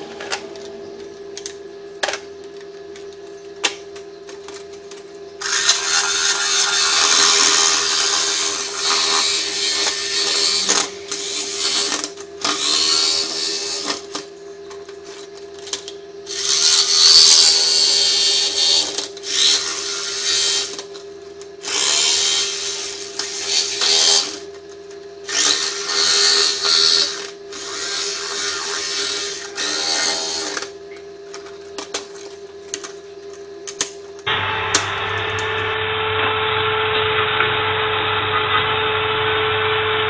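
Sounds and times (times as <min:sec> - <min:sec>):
steady hum: 0:00.0 - 0:40.0
jigsaw cutting metal sheet: 0:05.4 - 0:14.2, 0:16.3 - 0:20.9, 0:21.6 - 0:24.5, 0:25.2 - 0:30.8.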